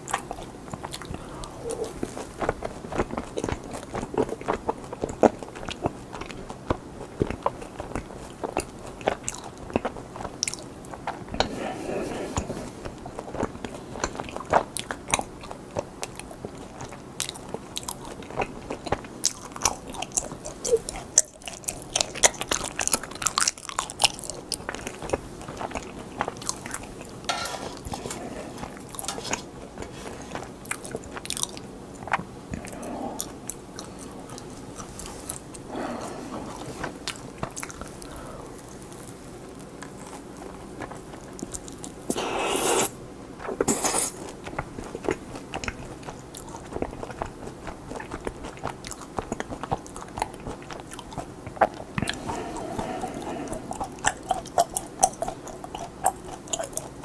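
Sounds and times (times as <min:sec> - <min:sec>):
close chewing and biting: 0:00.0 - 0:57.0
wet mouth clicks and crunches: 0:39.8 - 0:57.0.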